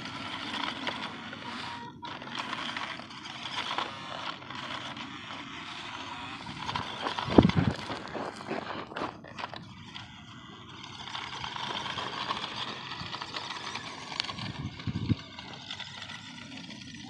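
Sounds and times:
electric motor whine: 0.0s - 17.0s
tyres crunching on gravel: 2.3s - 17.0s
footsteps on gravel: 6.4s - 10.1s.

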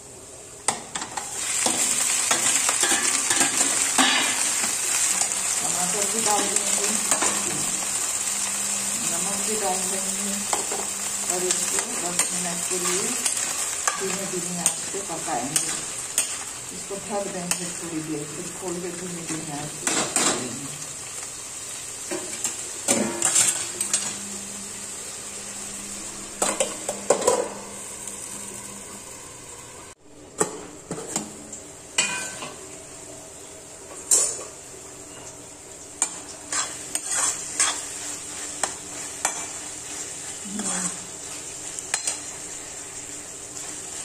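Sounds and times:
vegetables sizzling: 0.0s - 44.0s
spatula scraping in metal pan: 36.0s - 41.1s.

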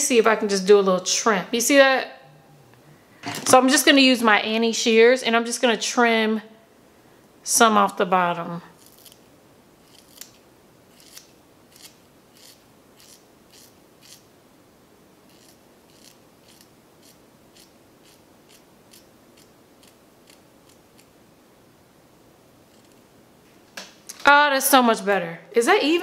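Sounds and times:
shears snipping hair: 8.8s - 9.2s, 9.8s - 14.3s, 15.3s - 21.1s, 22.7s - 23.0s.

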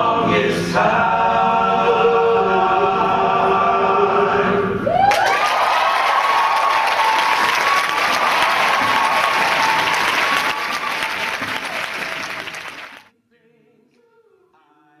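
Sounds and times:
audience applauding and cheering: 4.9s - 13.1s.

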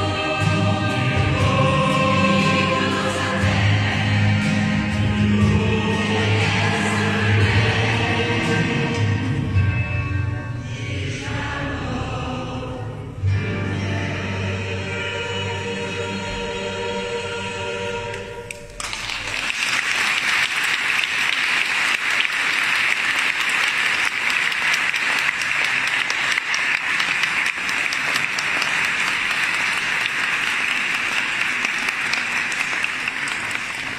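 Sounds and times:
choir holding a chord: 0.0s - 18.9s
audience applause: 18.7s - 33.9s.

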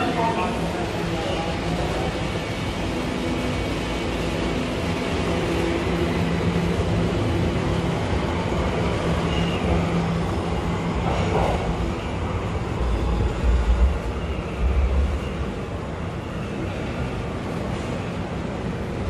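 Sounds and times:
subway train rumbling: 0.0s - 19.0s.

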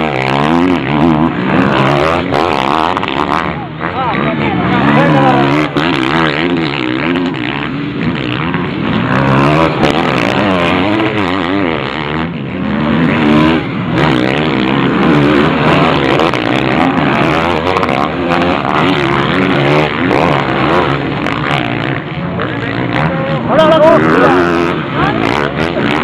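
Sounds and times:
motocross bikes revving: 0.0s - 26.0s.

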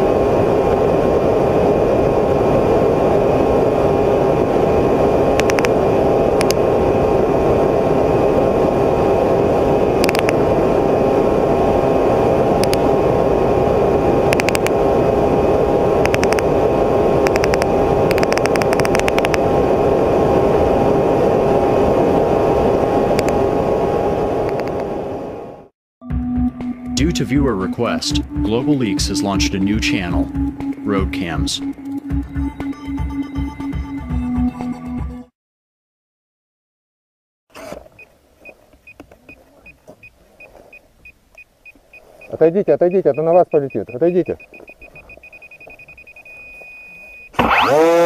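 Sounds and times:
whining tones: 0.0s - 25.7s, 37.5s - 48.0s
drone propellers humming: 0.0s - 35.2s, 37.7s - 48.0s
short clicks: 5.4s - 5.7s, 10.0s - 10.4s, 12.6s - 12.8s, 14.3s - 14.8s, 16.0s - 16.5s, 17.2s - 19.4s.

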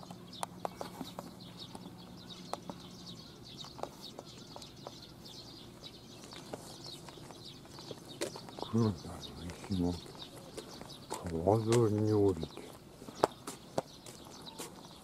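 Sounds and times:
footsteps on paved path: 0.0s - 15.0s
small birds chirping: 0.0s - 15.0s.

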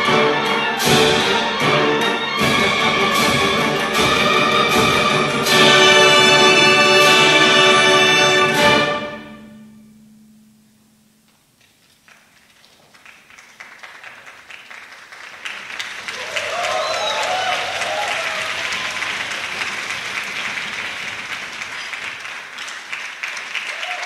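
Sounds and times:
audience applause: 12.0s - 24.0s.

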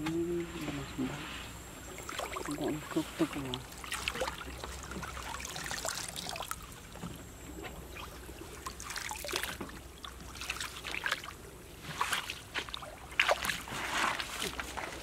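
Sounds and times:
water trickling: 1.7s - 11.4s
bare feet splashing through water and mud: 2.0s - 6.9s, 7.7s - 15.0s.

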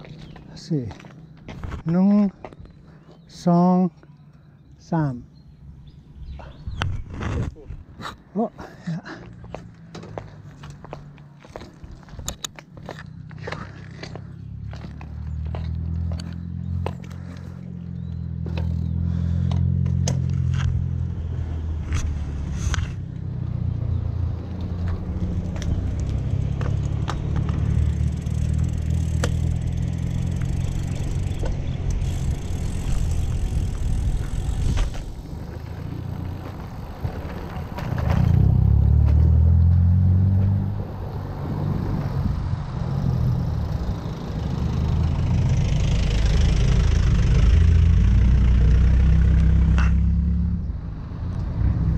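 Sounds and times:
wind buffeting microphone: 30.1s - 38.6s.

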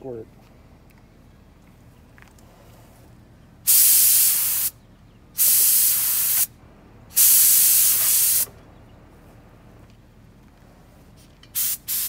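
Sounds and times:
paint spray gun hissing: 3.7s - 4.7s, 5.4s - 6.5s, 7.2s - 8.5s, 11.6s - 12.0s.

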